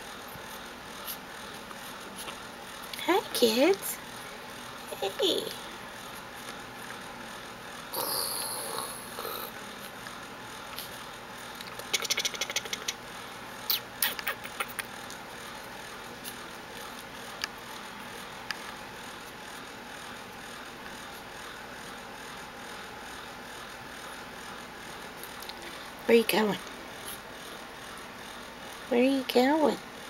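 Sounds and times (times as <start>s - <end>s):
puppies rustling on a quilt: 0.2s - 2.9s.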